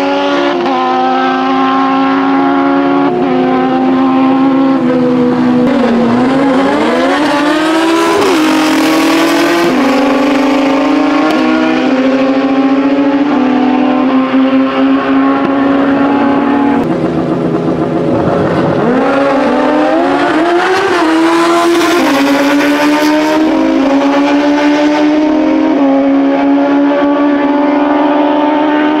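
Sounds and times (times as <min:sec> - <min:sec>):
wind rushing over microphone: 0:00.0 - 0:29.0
motorcycle engine running: 0:14.1 - 0:20.8.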